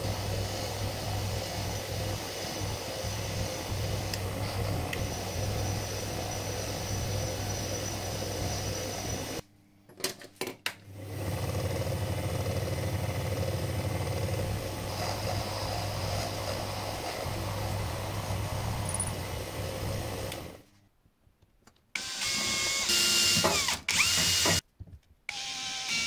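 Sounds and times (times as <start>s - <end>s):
metal lathe motor hum: 0.0s - 9.4s, 11.0s - 20.6s.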